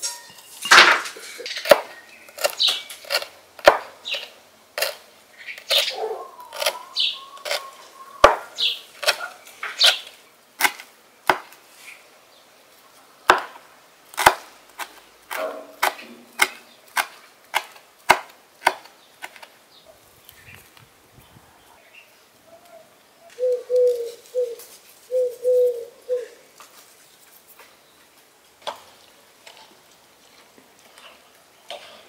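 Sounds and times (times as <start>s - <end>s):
knife chopping on wooden board: 1.6s - 3.9s, 8.2s - 10.0s, 10.6s - 11.6s, 14.2s - 19.4s.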